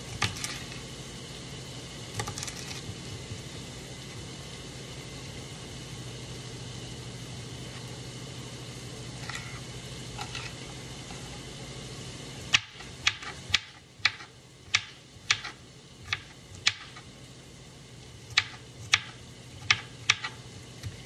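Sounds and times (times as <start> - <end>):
knife chopping on plastic board: 12.5 - 17.0, 18.3 - 21.0.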